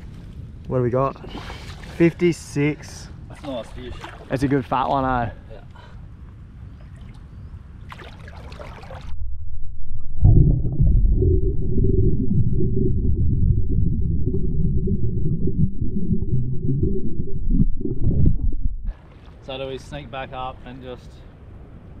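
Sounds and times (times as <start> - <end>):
underwater rumble and gurgle: 6.1 - 19.5
water splash: 7.9 - 9.2.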